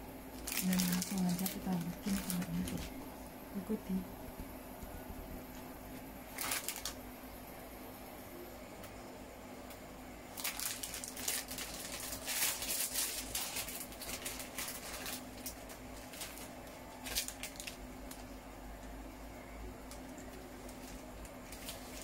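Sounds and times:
plastic packet crinkling: 0:00.4 - 0:03.0, 0:06.3 - 0:07.0, 0:10.3 - 0:18.3, 0:19.9 - 0:22.0.

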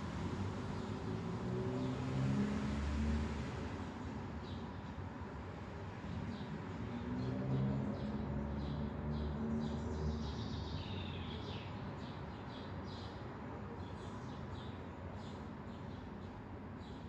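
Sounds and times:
small birds chirping: 0:06.1 - 0:17.0.

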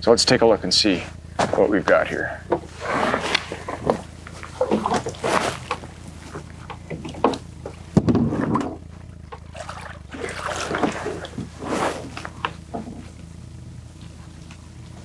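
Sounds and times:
low hum: 0:00.0 - 0:15.0
water splashing: 0:06.8 - 0:12.3.

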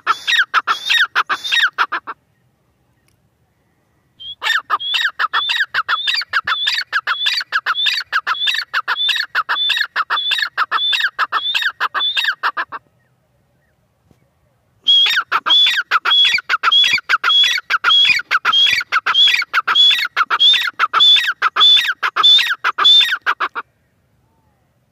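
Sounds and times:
francolin calling: 0:00.0 - 0:13.8, 0:14.8 - 0:24.7.

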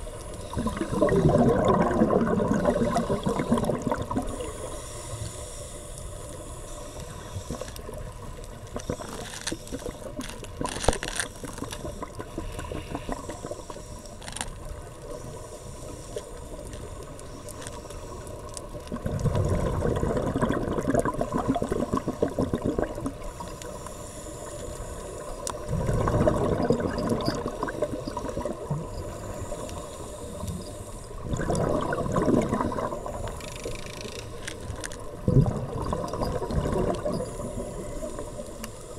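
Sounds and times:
steady underwater hiss: 0:00.0 - 0:38.9
bubbles gurgling underwater: 0:00.5 - 0:04.5, 0:18.9 - 0:23.4, 0:25.6 - 0:29.1, 0:31.2 - 0:33.4, 0:35.1 - 0:38.1.

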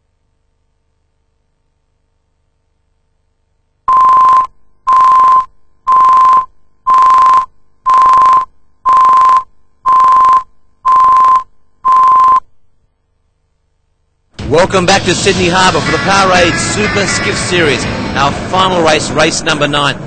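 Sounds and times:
short test tone beeps: 0:03.9 - 0:12.4.

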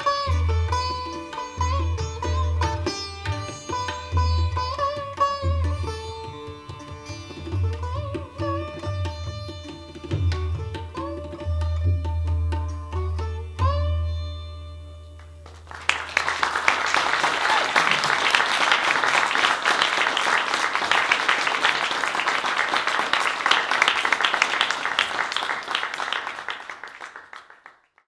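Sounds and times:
sitar note ringing: 0:11.0 - 0:15.2
audience applauding: 0:15.4 - 0:28.0.

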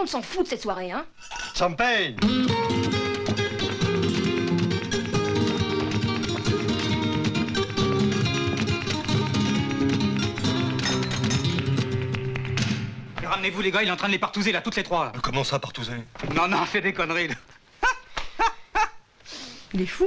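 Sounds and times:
flamenco acoustic guitar: 0:02.2 - 0:14.3.

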